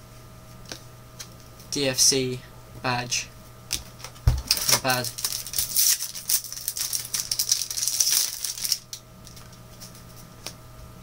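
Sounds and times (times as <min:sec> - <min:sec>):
foil wrapper crinkling: 0:04.5 - 0:10.1.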